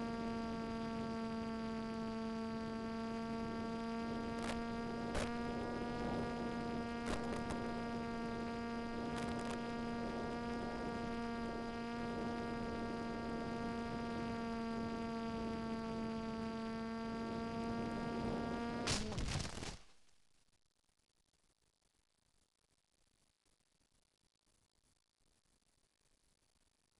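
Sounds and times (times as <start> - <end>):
electric motor hum: 0.0 - 19.7
radio static clicks: 0.6 - 19.8
crackling crash into grass: 18.8 - 20.0.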